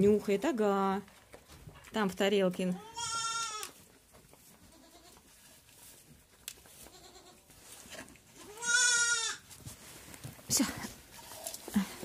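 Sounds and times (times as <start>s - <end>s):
goat bleating: 2.8s - 3.8s, 4.6s - 5.3s, 6.8s - 7.5s, 8.4s - 9.4s.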